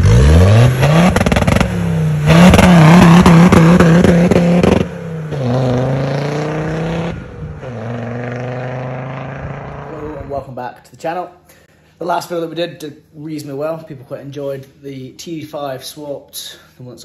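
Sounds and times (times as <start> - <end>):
diesel engine revving: 0.0 - 10.3.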